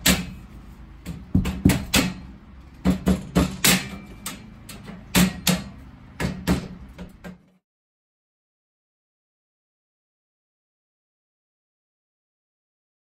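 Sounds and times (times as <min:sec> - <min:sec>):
rubber mallet striking steel rail: 0:01.1 - 0:04.2.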